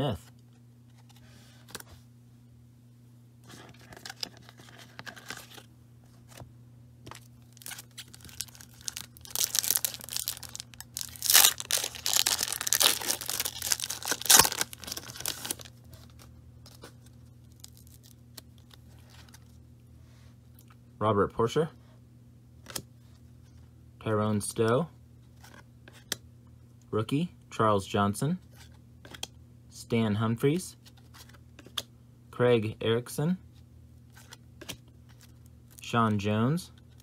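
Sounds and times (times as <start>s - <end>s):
wrapper rustling: 7.2s - 16.8s
wrapper tearing and crackling: 7.4s - 15.7s, 17.4s - 18.7s.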